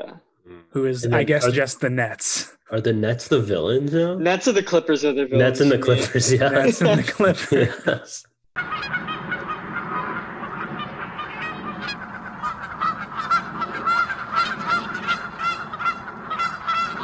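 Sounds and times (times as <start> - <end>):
geese honking: 8.6 - 17.0.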